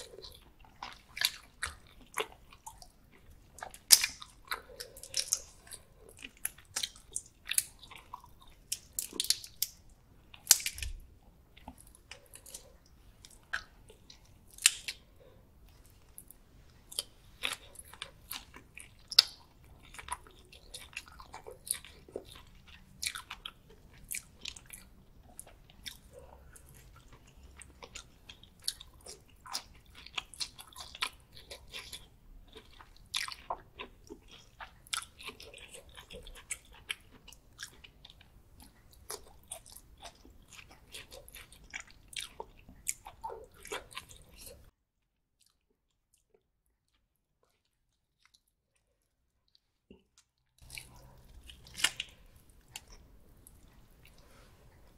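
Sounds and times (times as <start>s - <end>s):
crunchy chewing of prawns: 0.0s - 44.7s, 45.4s - 54.9s.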